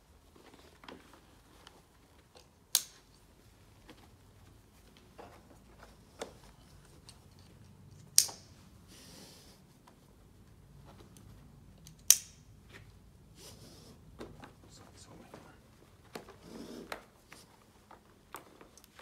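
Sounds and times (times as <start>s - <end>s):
buckle click: 11.8s - 12.5s.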